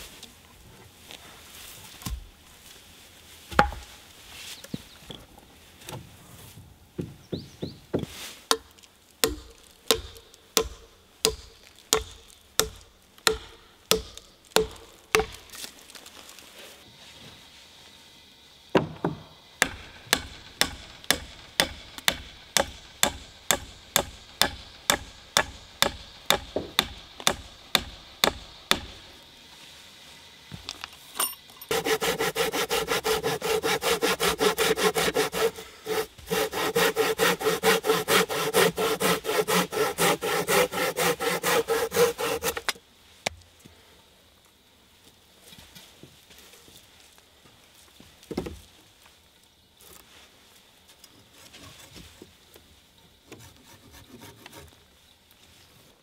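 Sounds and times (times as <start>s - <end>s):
hand tool striking wood: 3.5s - 3.9s, 7.9s - 15.7s, 18.8s - 28.9s, 31.6s - 42.8s.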